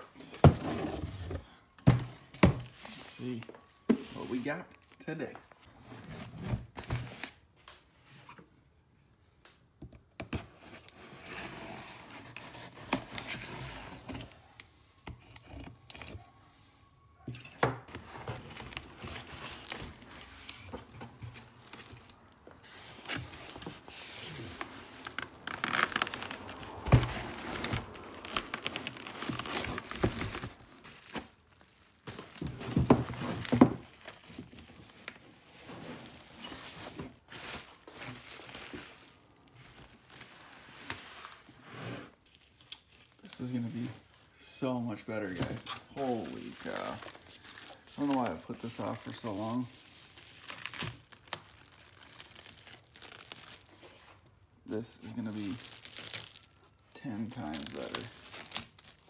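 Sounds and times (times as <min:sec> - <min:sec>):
bubble wrap crinkling: 0:17.8 - 0:59.0
cardboard box tearing: 0:22.7 - 0:31.4.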